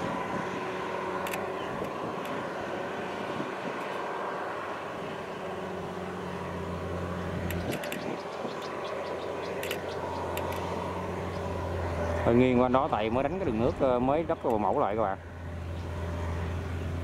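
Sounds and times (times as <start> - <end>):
diesel engine under load: 0.0 - 17.0
sharp clicks: 1.2 - 2.4, 7.4 - 10.8.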